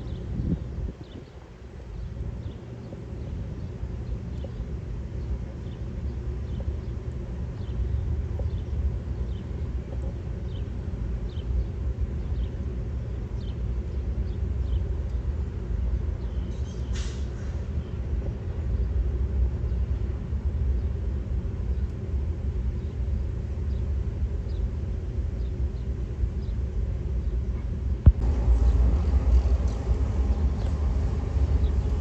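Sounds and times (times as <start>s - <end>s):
short hiss-like burst: 16.9s - 17.5s
locomotive engines rumbling: 28.0s - 32.0s.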